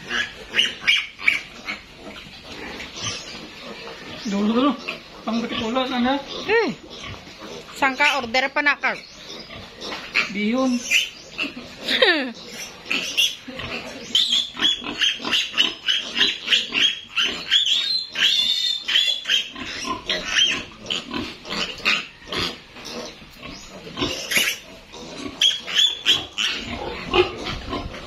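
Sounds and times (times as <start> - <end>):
piglet squealing: 0.0 - 1.9, 7.7 - 27.7.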